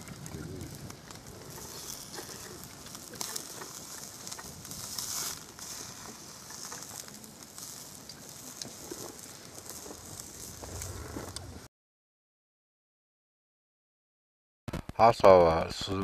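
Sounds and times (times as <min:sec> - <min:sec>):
fire crackling: 0:00.0 - 0:11.7
food sizzling on grill: 0:00.0 - 0:11.7.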